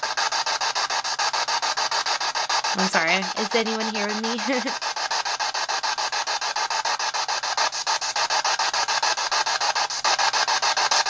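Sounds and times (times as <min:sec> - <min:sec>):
chopped radio static: 0:02.7 - 0:04.9.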